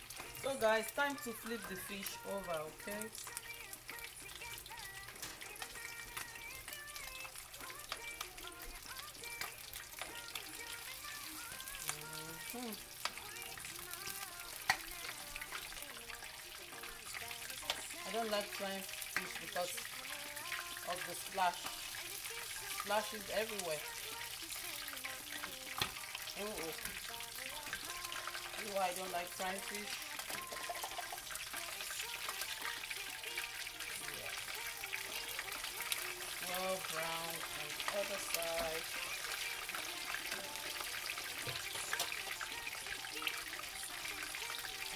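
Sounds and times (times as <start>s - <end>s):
fish sizzling in hot oil: 0.0s - 44.9s
metal spatula clicking on pan: 14.6s - 15.2s.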